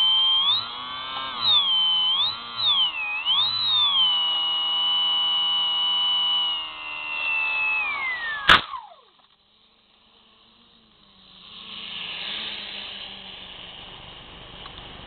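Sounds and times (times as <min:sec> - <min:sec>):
model plane motor whining: 0:00.0 - 0:15.0
plane crashing into grass: 0:08.4 - 0:08.9.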